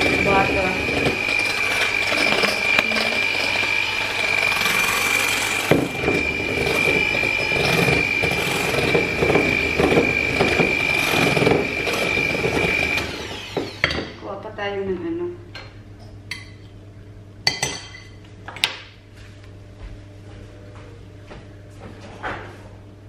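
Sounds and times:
electric hand mixer whining: 0:00.0 - 0:14.2.

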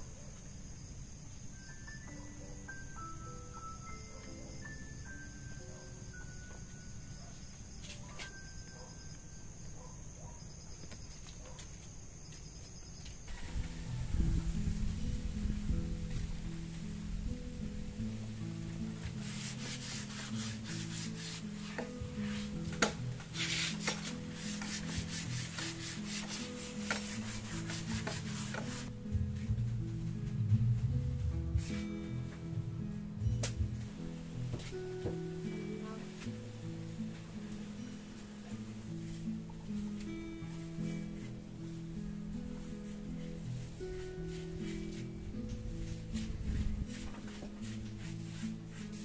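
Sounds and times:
crickets trilling: 0:00.0 - 0:29.3
faint background music: 0:00.0 - 0:49.0
wood being sanded by hand: 0:19.0 - 0:28.9, 0:43.7 - 0:45.1, 0:45.9 - 0:49.0.

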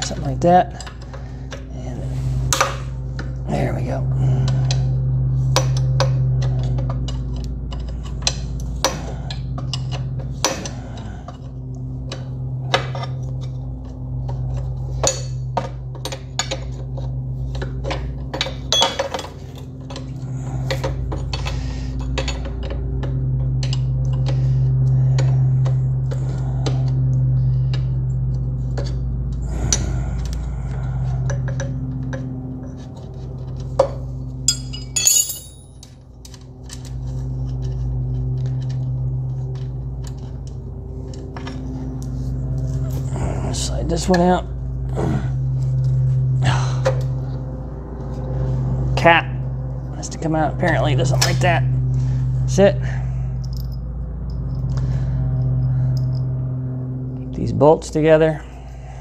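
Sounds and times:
steady low hum: 0:00.0 - 0:59.0
metal tools clinking on metal: 0:18.3 - 0:22.8, 0:34.5 - 0:36.0.

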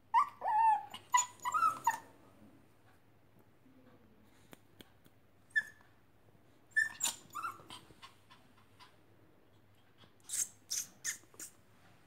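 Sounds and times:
puppy whimpering: 0:00.1 - 0:02.1, 0:05.5 - 0:05.8, 0:06.7 - 0:09.0.

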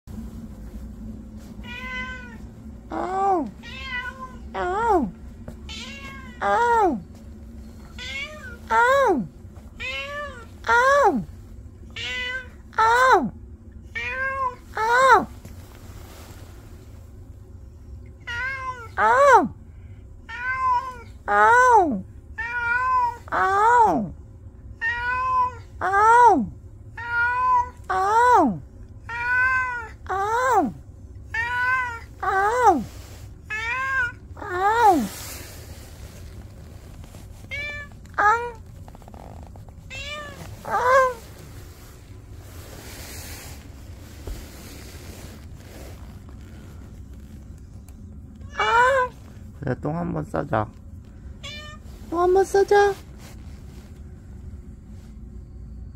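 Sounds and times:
cat meowing: 0:01.6 - 0:05.1, 0:05.7 - 0:07.0, 0:08.0 - 0:09.0, 0:09.8 - 0:11.0, 0:11.9 - 0:13.1, 0:20.3 - 0:21.6, 0:22.4 - 0:23.9, 0:24.8 - 0:26.2, 0:27.0 - 0:28.3, 0:29.1 - 0:30.4, 0:31.3 - 0:32.7, 0:33.5 - 0:35.0, 0:37.5 - 0:38.6, 0:39.9 - 0:41.2, 0:48.4 - 0:49.2, 0:51.4 - 0:51.8.

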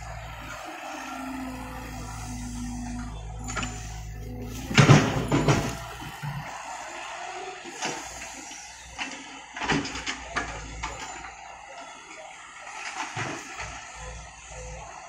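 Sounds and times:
excavator knocks and clanks: 0:03.3 - 0:07.1.

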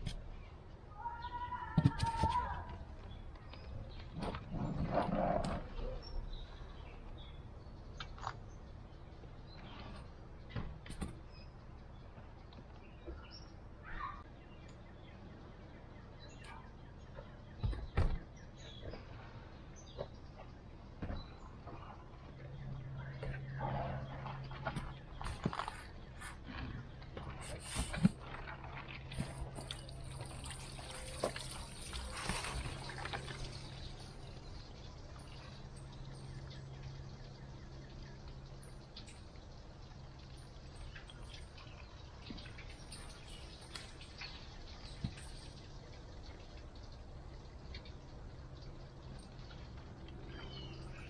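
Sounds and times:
birds chirping: 0:00.0 - 0:51.0
water pouring onto wooden deck: 0:27.2 - 0:50.3.

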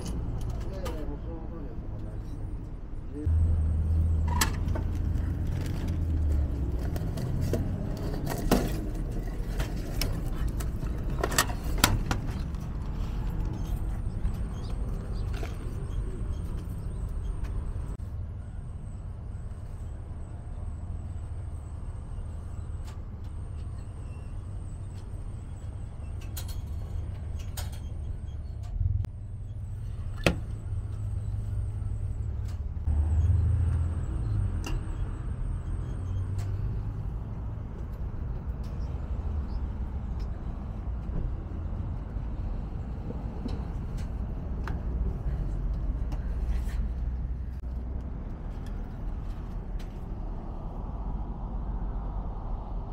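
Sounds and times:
low rumble: 0:36.8 - 0:52.9.

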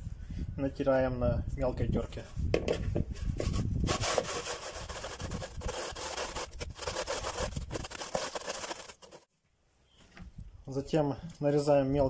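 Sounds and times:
onion rasping on a grater: 0:03.9 - 0:09.2.

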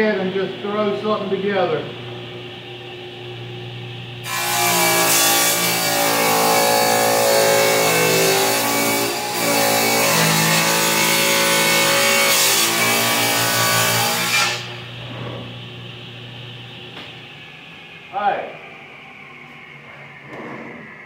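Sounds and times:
table saw cutting wood: 0:04.2 - 0:14.9.

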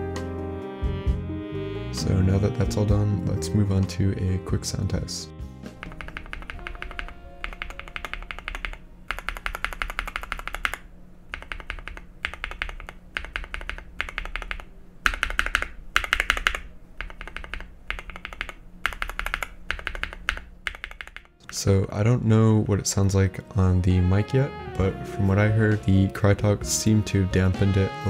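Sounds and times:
mechanical keyboard typing: 0:05.8 - 0:21.7.

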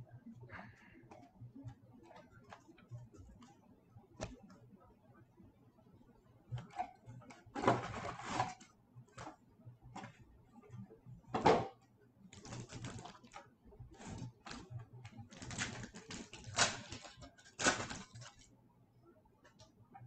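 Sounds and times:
cardboard and wrapper rustling: 0:07.6 - 0:08.6, 0:12.4 - 0:13.4, 0:14.0 - 0:18.4.

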